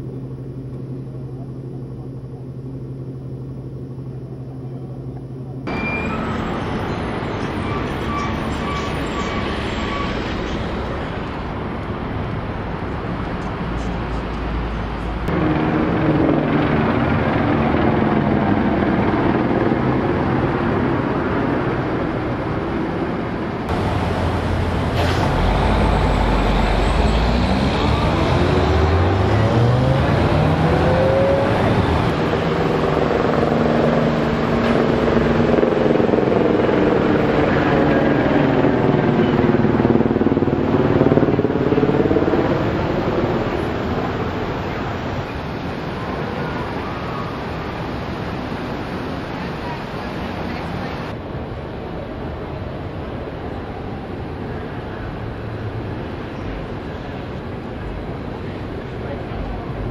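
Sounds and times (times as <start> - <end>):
passing cars: 23.2 - 51.5
vehicle engine accelerating: 23.7 - 43.1.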